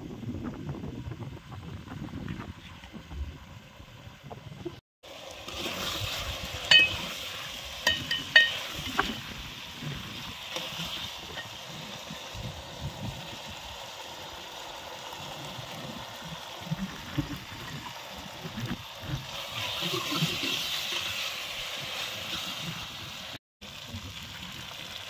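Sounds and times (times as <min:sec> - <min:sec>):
meat sizzling in a pot: 0:05.0 - 0:25.0
ladle clinking against pot: 0:06.7 - 0:07.0, 0:07.9 - 0:08.7.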